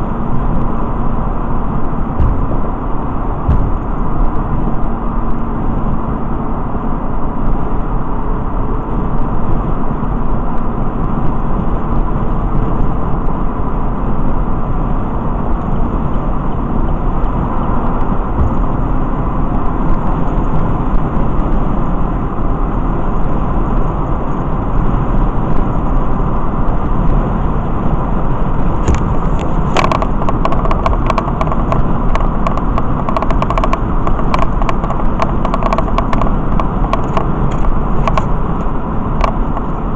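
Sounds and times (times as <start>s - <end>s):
vehicle road and engine noise: 0.0s - 39.9s
small clicks: 28.8s - 39.8s.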